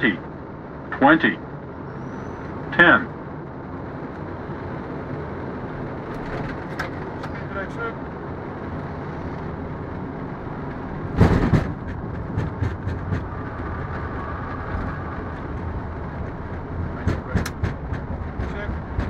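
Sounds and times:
rumble of wheels and engines: 0:00.0 - 0:19.0
loud double thump: 0:11.1 - 0:13.3.

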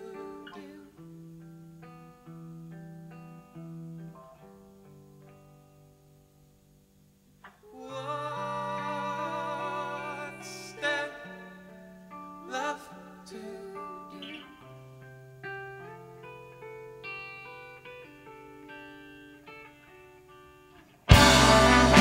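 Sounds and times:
wordless vibrato singing: 0:00.0 - 0:01.1, 0:07.6 - 0:14.8, 0:21.1 - 0:22.0
soft sustained guitar notes: 0:00.0 - 0:22.0
live band music: 0:21.1 - 0:22.0.

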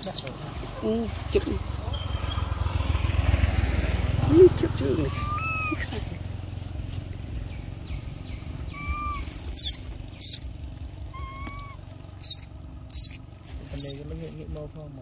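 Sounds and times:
infant monkey squeaking: 0:00.0 - 0:00.8, 0:04.4 - 0:06.1, 0:08.5 - 0:14.1
infant monkey cooing: 0:04.2 - 0:06.4, 0:08.6 - 0:14.0.

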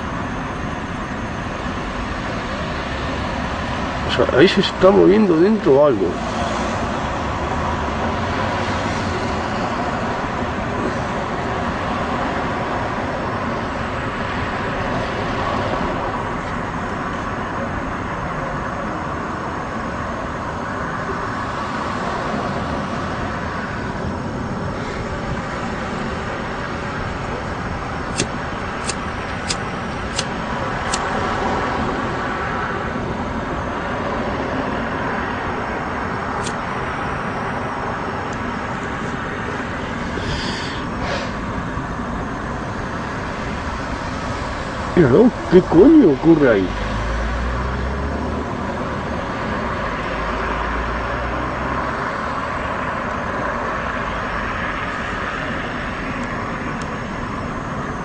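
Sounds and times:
city traffic rumble: 0:00.0 - 0:58.0
sharp clicks: 0:28.1 - 0:31.1.

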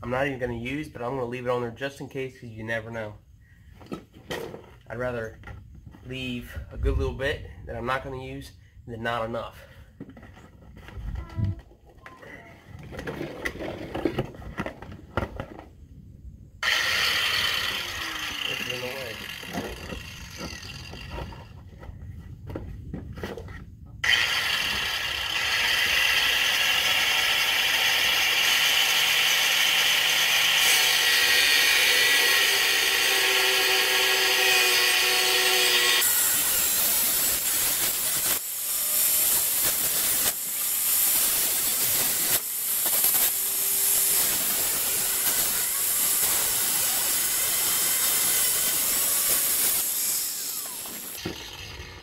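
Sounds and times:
angle grinder cutting metal: 0:16.6 - 0:21.5, 0:24.0 - 0:52.0.

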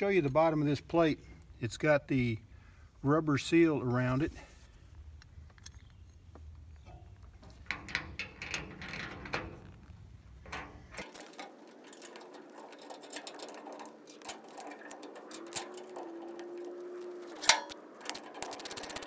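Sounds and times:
metallic clicks and scrapes: 0:04.2 - 0:19.0.

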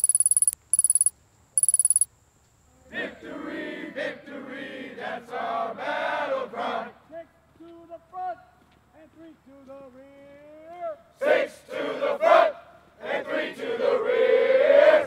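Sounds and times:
high-pitched electronic beeping: 0:00.0 - 0:02.1.

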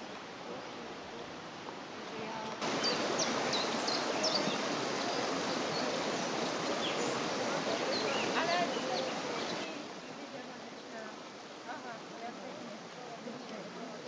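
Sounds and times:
steady rushing hiss: 0:00.0 - 0:14.0
small birds chirping: 0:02.3 - 0:11.1.

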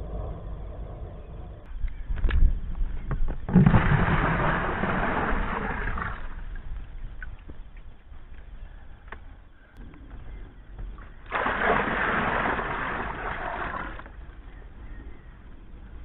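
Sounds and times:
water pouring into plastic tub: 0:11.3 - 0:14.2.

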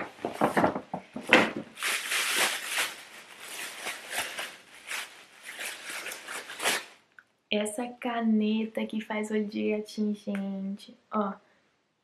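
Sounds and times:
plastic bag rustling: 0:00.0 - 0:07.0
sharp crackle: 0:01.8 - 0:07.0.

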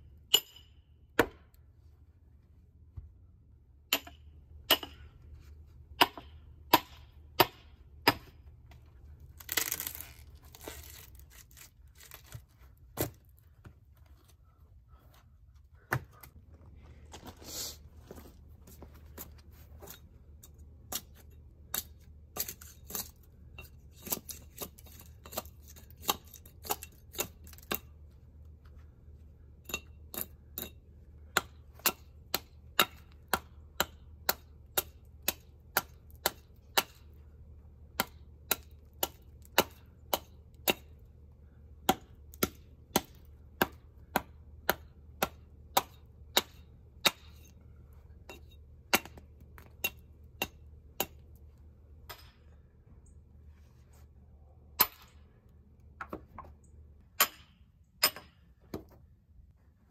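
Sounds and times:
hatchet chopping log: 0:00.3 - 0:01.6, 0:03.9 - 0:05.1, 0:06.0 - 0:08.4, 0:24.0 - 0:28.0, 0:31.3 - 0:37.1, 0:37.9 - 0:41.0, 0:41.8 - 0:47.4, 0:48.3 - 0:51.3, 0:57.2 - 0:59.0.

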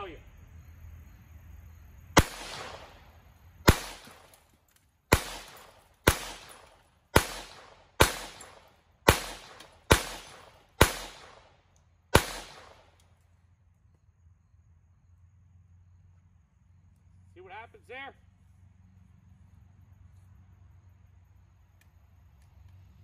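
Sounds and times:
pistol shots: 0:02.2 - 0:04.4, 0:05.1 - 0:13.0.

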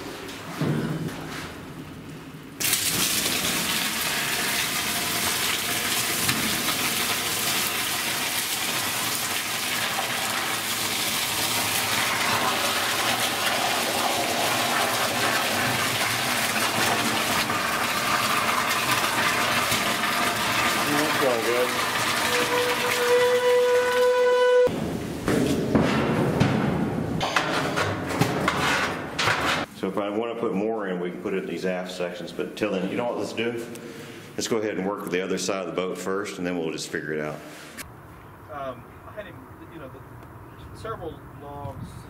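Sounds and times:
molten metal pouring: 0:02.6 - 0:24.2.

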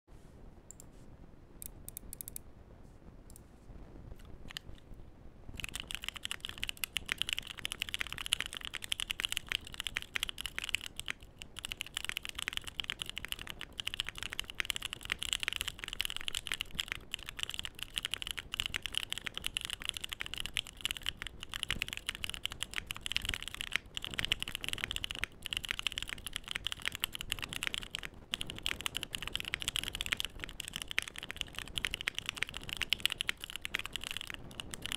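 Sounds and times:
mechanical keyboard typing: 0:05.6 - 0:34.9.

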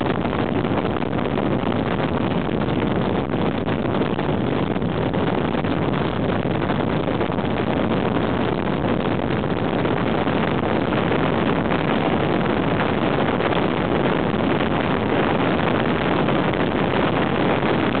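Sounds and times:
wind rush on microphone: 0:00.0 - 0:18.0.

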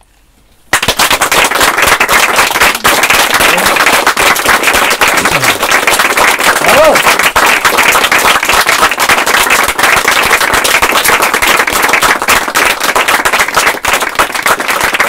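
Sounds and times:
audience applauding: 0:00.7 - 0:15.0.

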